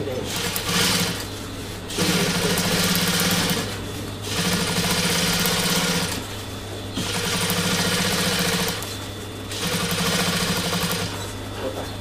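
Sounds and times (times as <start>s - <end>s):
sewing machine motor hum: 0.0s - 1.3s, 1.9s - 6.4s, 7.0s - 11.4s
sewing machine stitching: 0.3s - 1.2s, 2.0s - 6.2s, 7.0s - 8.8s, 9.5s - 11.2s.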